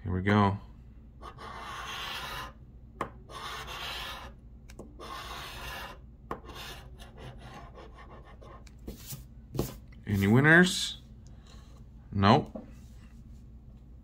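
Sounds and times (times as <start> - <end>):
lottery ticket scratching: 1.2 - 2.6, 3.3 - 4.4.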